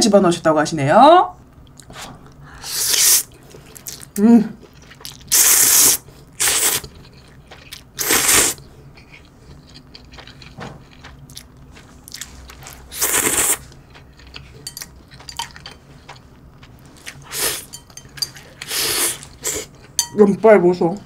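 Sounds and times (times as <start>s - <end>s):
person slurping noodles: 2.6s - 3.3s, 5.3s - 6.9s, 8.0s - 8.6s, 12.9s - 13.6s, 18.6s - 19.7s
quiet chewing: 3.3s - 5.4s, 6.0s - 20.0s.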